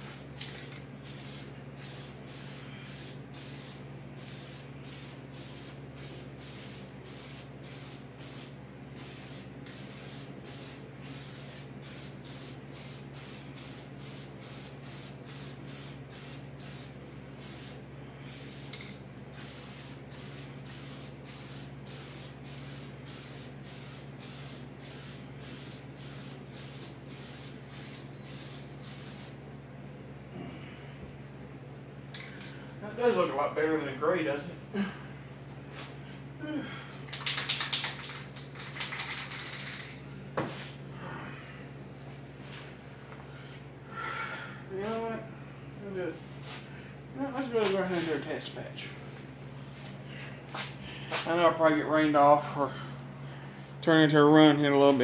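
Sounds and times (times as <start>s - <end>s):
spray can hissing in bursts: 0.0s - 18.8s, 19.4s - 29.4s.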